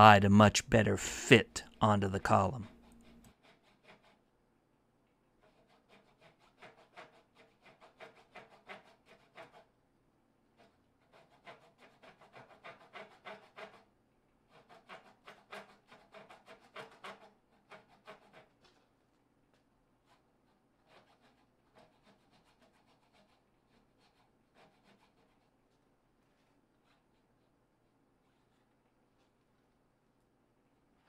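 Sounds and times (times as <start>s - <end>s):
hand saw cutting wood: 1.1s - 4.2s, 5.4s - 9.7s, 10.6s - 18.9s, 20.0s - 25.6s.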